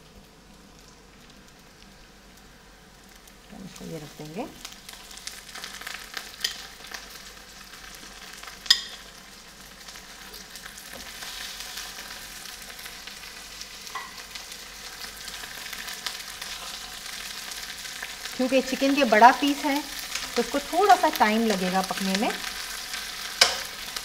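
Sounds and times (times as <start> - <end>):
chicken sizzling in a frying pan: 0.0 - 24.0
metal tongs clicking on pan: 8.6 - 9.0, 23.4 - 23.8.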